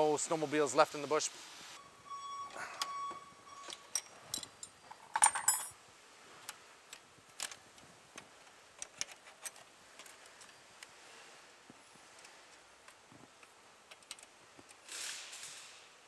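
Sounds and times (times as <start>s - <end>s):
metal wrench clinking on bolts: 3.6s - 5.8s.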